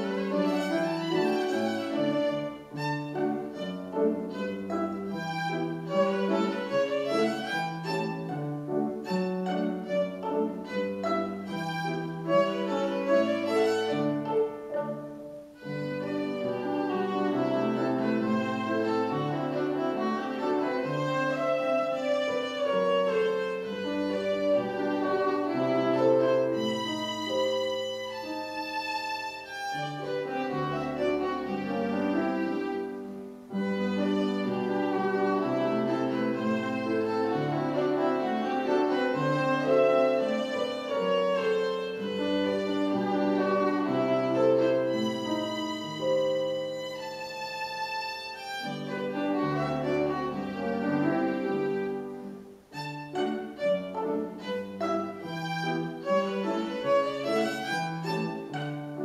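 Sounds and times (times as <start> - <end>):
child playing violin: 0.0 - 59.0
piano accompaniment: 0.0 - 59.0.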